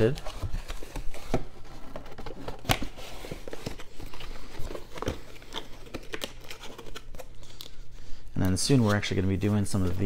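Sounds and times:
cardboard box rustling: 0:00.0 - 0:07.3.

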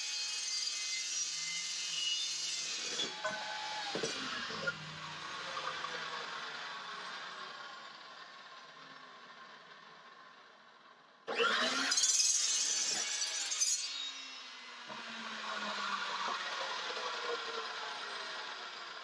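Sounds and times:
chop saw cutting metal tubing: 0:00.0 - 0:06.6, 0:11.3 - 0:19.0.

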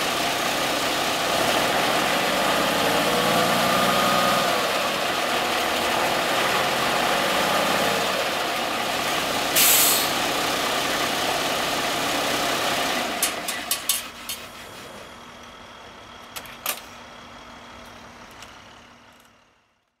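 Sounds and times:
heavy vehicle engine running: 0:00.0 - 0:19.9
sharp clicks and knocks: 0:13.1 - 0:14.5.

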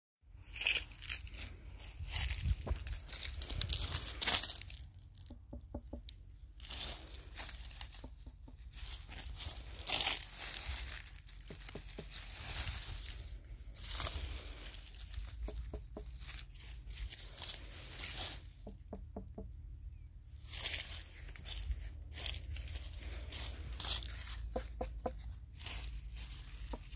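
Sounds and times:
leafy vines rustling: 0:00.4 - 0:05.4, 0:06.0 - 0:18.8, 0:20.3 - 0:26.9
fingers tapping on watermelons: 0:05.2 - 0:06.2, 0:18.6 - 0:19.5.

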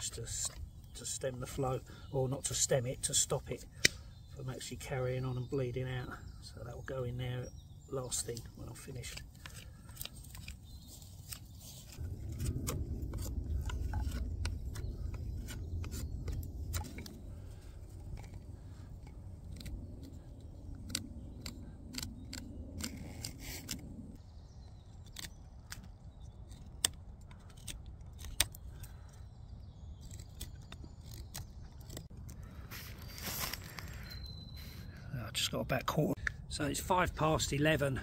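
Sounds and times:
knife carving wood: 0:08.8 - 0:32.4
low rumble: 0:11.7 - 0:24.2.

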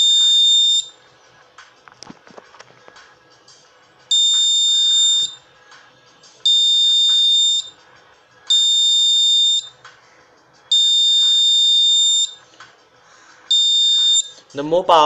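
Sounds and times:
high-pitched buzzer tone: 0:00.0 - 0:00.9, 0:04.1 - 0:05.4, 0:06.5 - 0:07.7, 0:08.5 - 0:09.7, 0:10.7 - 0:12.4, 0:13.5 - 0:14.4.

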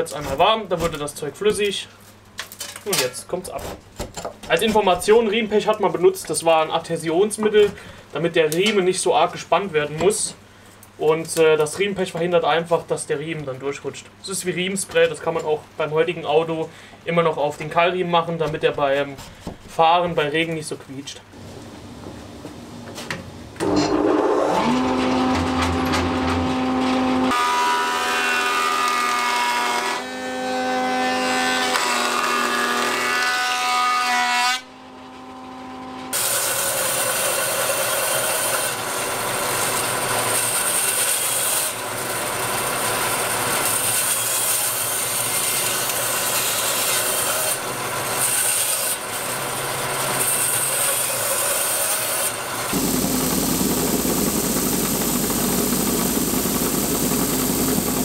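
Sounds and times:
bandsaw cutting wood: 0:23.6 - 0:58.0
thickness planer running: 0:31.6 - 0:58.0.

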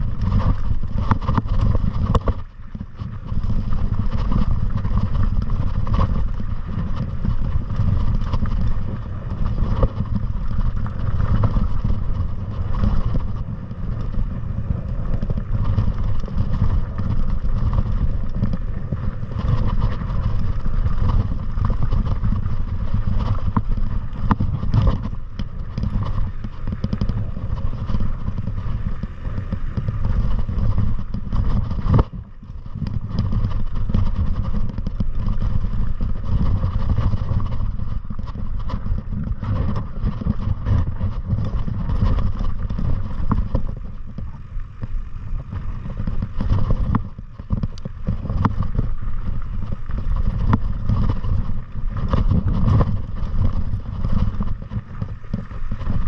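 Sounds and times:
wind rumble on microphone: 0:00.0 - 0:56.0.

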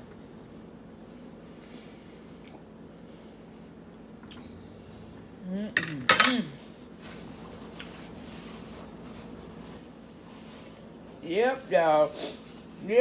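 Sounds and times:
paper napkin rustling: 0:07.0 - 0:13.0.

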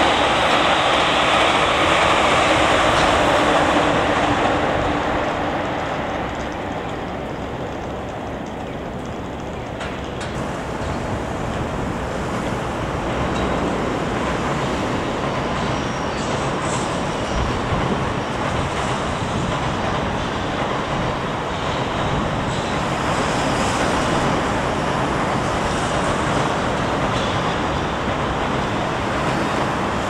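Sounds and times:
city traffic rumble: 0:00.0 - 0:30.0
trains running on tracks: 0:00.0 - 0:30.0.

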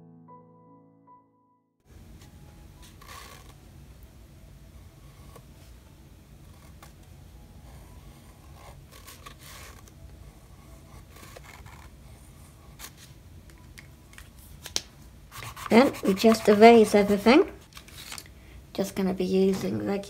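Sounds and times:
pen scratching on paper: 0:02.8 - 0:03.6, 0:04.8 - 0:05.5, 0:06.4 - 0:07.0, 0:07.6 - 0:13.2, 0:15.3 - 0:17.6
hands rustling on paper: 0:12.8 - 0:18.3.

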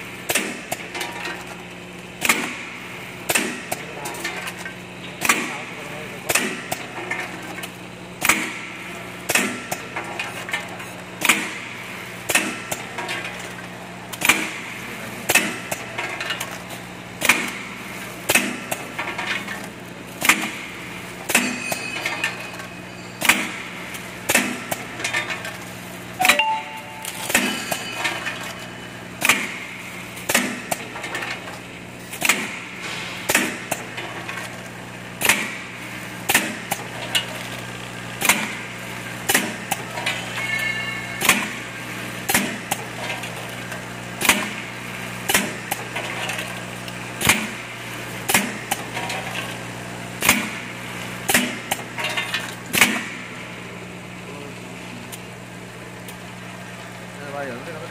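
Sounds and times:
steady motor hum: 0:00.0 - 0:26.2
metallic clacks of machine: 0:21.2 - 0:25.6, 0:26.3 - 0:29.6, 0:39.3 - 0:43.4.

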